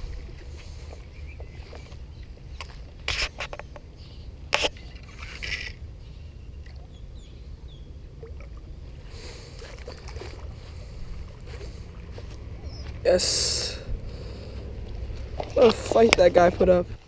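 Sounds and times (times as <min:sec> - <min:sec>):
steady low rumble: 0:00.0 - 0:05.0, 0:05.7 - 0:17.0
fish splashing: 0:08.1 - 0:16.4.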